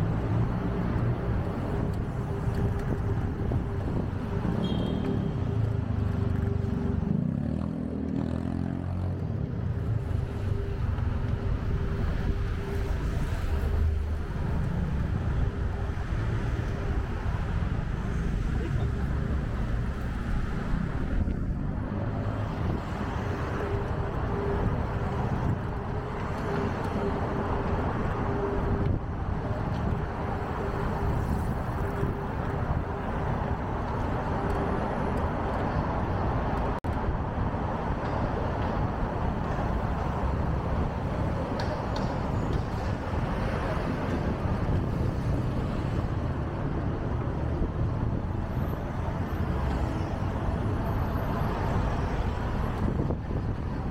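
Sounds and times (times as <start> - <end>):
passing cars and buses: 0.0 - 53.9.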